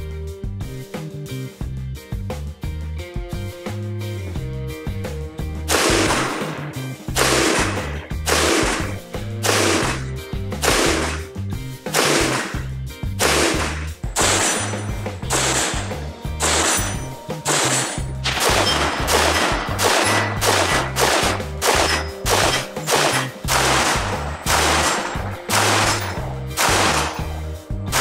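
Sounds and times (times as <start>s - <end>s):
background music with bass line: 0.0s - 28.0s
rifle shots: 5.7s - 11.3s, 11.9s - 28.0s.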